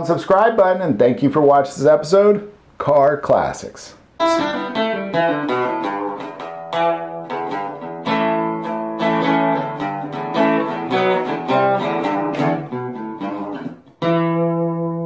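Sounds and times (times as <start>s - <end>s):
guitar plucked and strummed: 4.2s - 15.0s.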